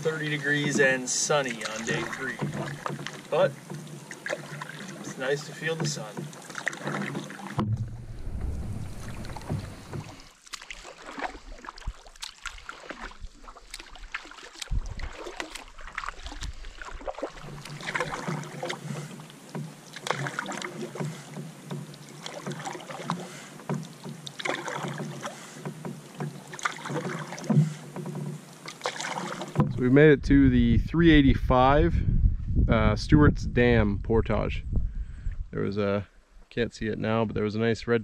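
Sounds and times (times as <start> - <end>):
paddle stroking water: 0.0 - 30.0.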